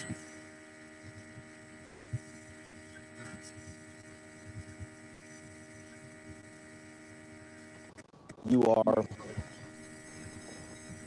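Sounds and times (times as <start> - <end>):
faint electrical hum: 0.0 - 11.0
soft low thumps: 1.0 - 6.4.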